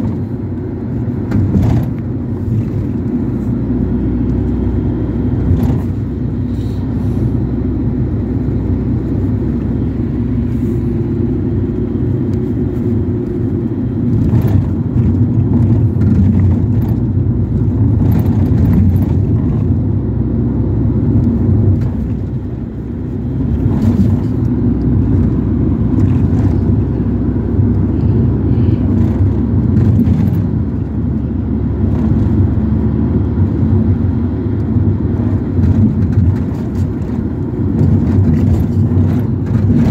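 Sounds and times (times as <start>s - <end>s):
engine and road rumble: 0.0s - 39.9s
knocks and rattles: 1.2s - 3.0s.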